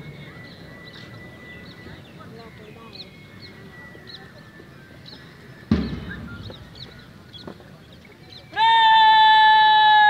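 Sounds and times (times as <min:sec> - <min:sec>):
loud thump: 0:05.7 - 0:06.8.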